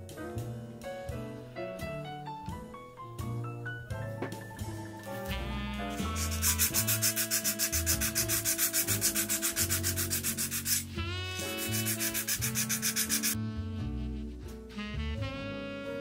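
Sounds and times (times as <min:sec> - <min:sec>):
hand sanding metal edge: 0:06.0 - 0:13.4.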